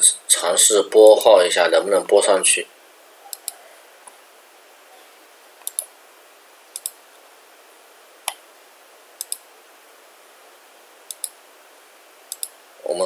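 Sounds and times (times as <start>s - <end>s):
mouse button clicks: 3.3s - 3.6s, 5.6s - 5.9s.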